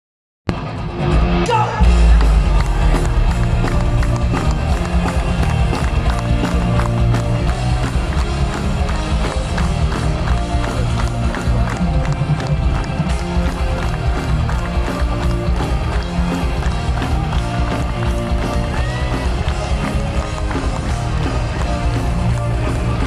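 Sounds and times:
heavy metal band playing: 0:00.5 - 0:23.0
drum strokes: 0:01.8 - 0:10.5.

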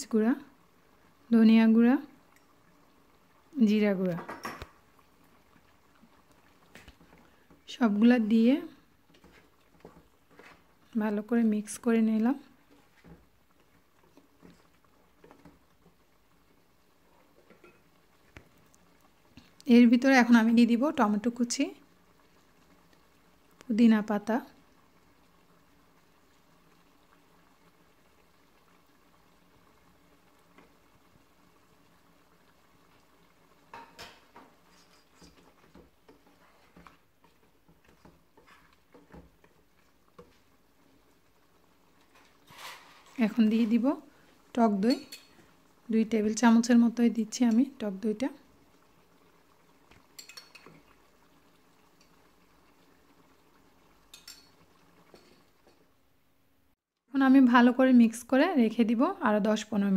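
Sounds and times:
spoon stirring in cooking pot: 0:04.2 - 0:10.9, 0:12.1 - 0:19.6, 0:32.4 - 0:43.8, 0:44.8 - 0:45.6, 0:49.2 - 0:53.0, 0:54.0 - 0:55.9
spatula scraping pot: 0:34.3 - 0:40.5.

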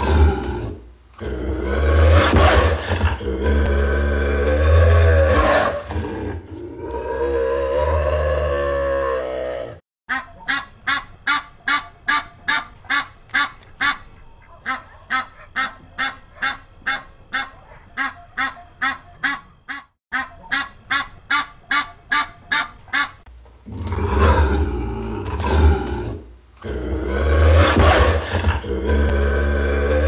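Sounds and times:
ducks quacking: 0:10.1 - 0:23.2.

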